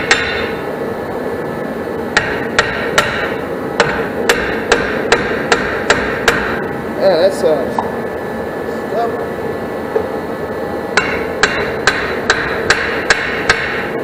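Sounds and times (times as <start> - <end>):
hammer striking brake drum: 0.0 - 0.6, 2.2 - 6.7, 11.0 - 14.0
steady hum: 0.0 - 14.0.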